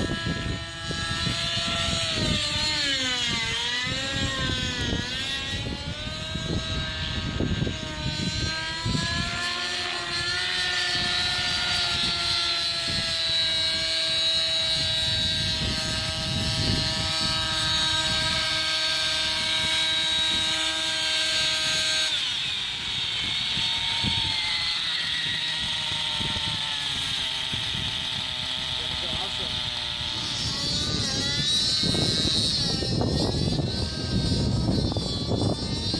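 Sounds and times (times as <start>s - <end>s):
model helicopter engine whining: 0.0s - 35.9s.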